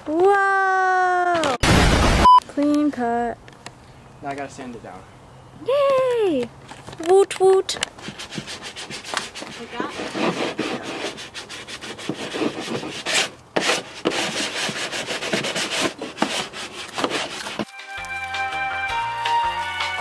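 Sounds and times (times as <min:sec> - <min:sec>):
hand sanding plastic: 0:07.7 - 0:17.7.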